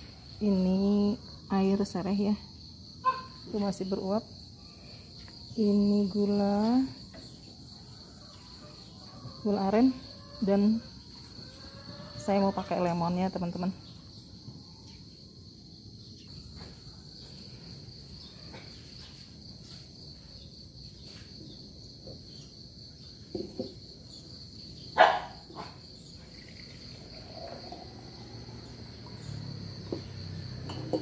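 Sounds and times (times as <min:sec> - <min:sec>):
insects chirring: 0:00.0 - 0:31.0
kitchenware knocking on wooden table: 0:23.3 - 0:23.8, 0:30.7 - 0:31.0.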